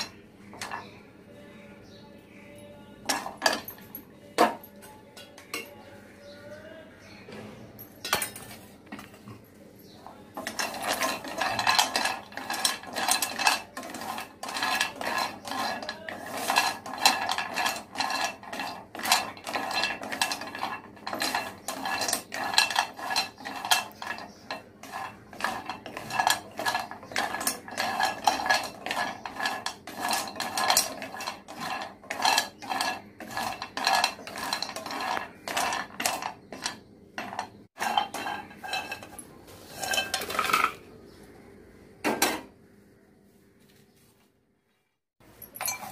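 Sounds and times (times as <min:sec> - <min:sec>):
wooden spatula scraping pan: 0:00.0 - 0:00.9, 0:10.4 - 0:40.8
roots clattering in metal pan: 0:10.4 - 0:40.9.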